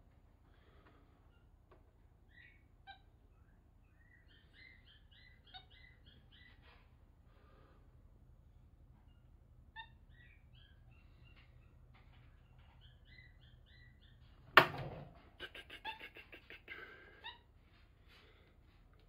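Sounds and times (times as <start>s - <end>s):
monkey chirping: 2.3s - 6.6s, 9.1s - 11.1s, 15.4s - 17.4s.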